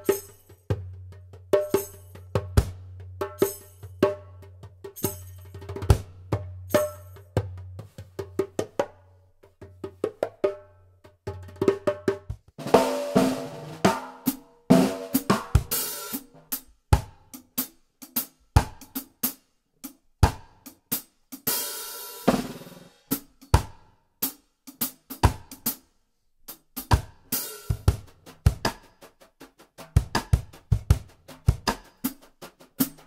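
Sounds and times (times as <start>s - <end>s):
cajon kick drum: 5.6s - 9.0s, 9.6s - 13.2s, 17.0s - 17.3s, 26.9s - 33.0s
snare drum strokes: 26.9s - 33.0s.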